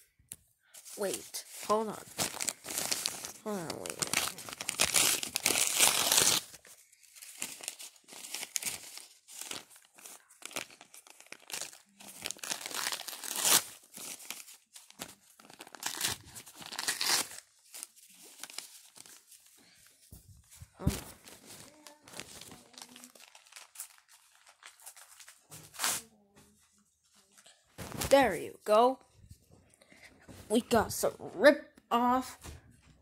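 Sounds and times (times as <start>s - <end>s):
paper crinkling and tearing: 0.8s - 19.6s, 20.7s - 26.1s.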